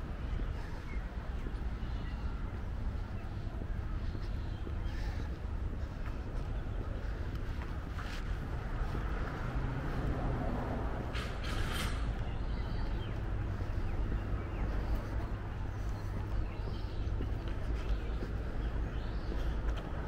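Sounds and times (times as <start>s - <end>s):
distant traffic rumble: 0.0s - 20.0s.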